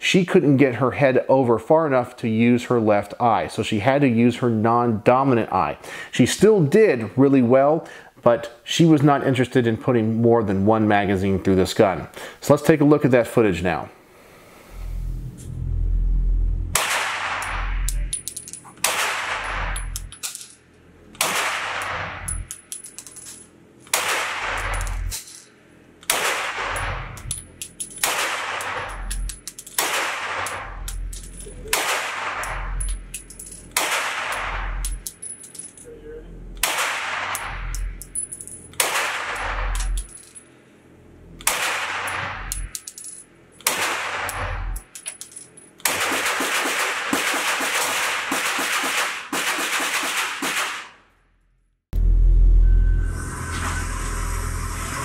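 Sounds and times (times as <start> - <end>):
gunshots echoing indoors: 16.8 - 18.0, 18.8 - 19.8, 21.2 - 22.2, 23.9 - 25.0, 26.1 - 27.1, 28.0 - 29.0, 29.8 - 30.8, 31.7 - 32.8, 33.8 - 34.8, 36.6 - 37.7, 38.8 - 39.8, 43.7 - 44.5, 45.9 - 51.0.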